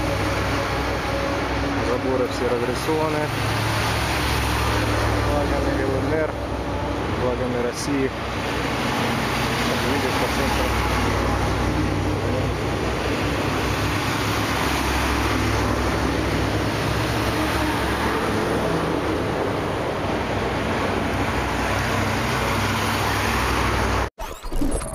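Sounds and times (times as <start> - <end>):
motor vehicle rumble: 0.0 - 24.1
road noise: 0.0 - 24.1.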